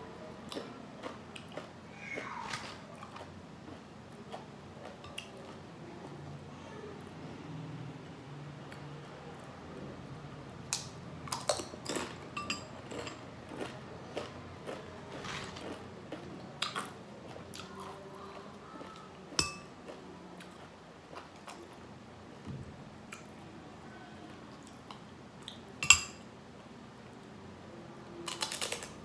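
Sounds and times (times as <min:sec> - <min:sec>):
metal spoon clinking on glass bowls: 0:11.9 - 0:13.2, 0:19.4 - 0:19.7, 0:25.8 - 0:26.2
tortilla chips crunching: 0:12.9 - 0:16.8, 0:28.3 - 0:29.0.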